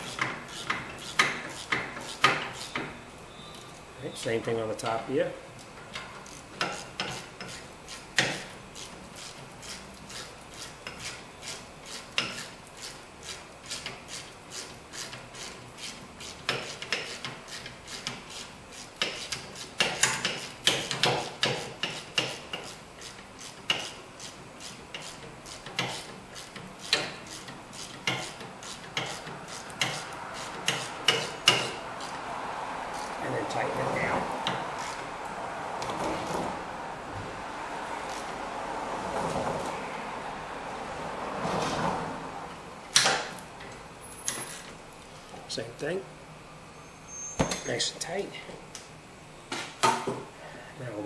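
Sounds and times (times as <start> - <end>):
hand ratchet clicking: 0.0 - 2.8, 5.9 - 32.2.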